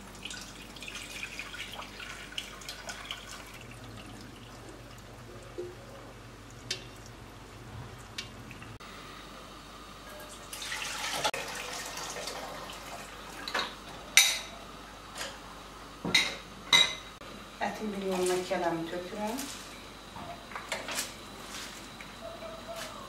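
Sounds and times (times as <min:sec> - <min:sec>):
broth trickling and dripping: 0:00.0 - 0:08.8.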